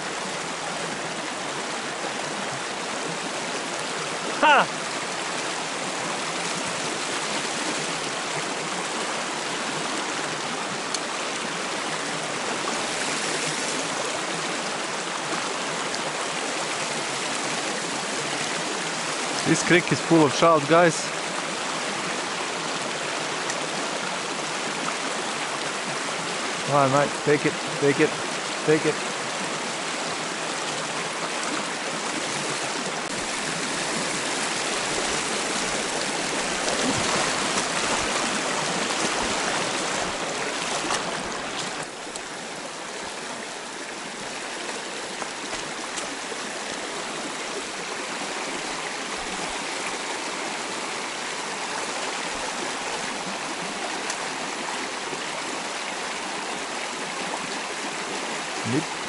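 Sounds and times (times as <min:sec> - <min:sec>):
creek water rushing over stones: 0:00.0 - 0:59.0.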